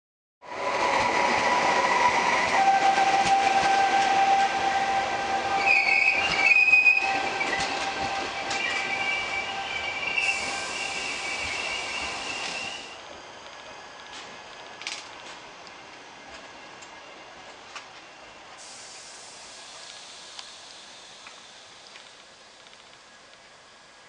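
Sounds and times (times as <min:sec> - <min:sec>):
train wheels squealing: 0:01.1 - 0:13.0.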